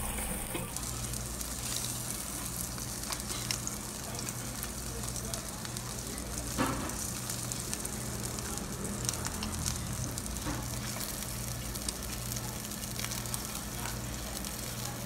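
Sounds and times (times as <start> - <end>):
low steady hum: 0.0 - 1.4
fat crackling and popping: 0.0 - 15.0
meat sizzling on a grill: 0.0 - 15.0.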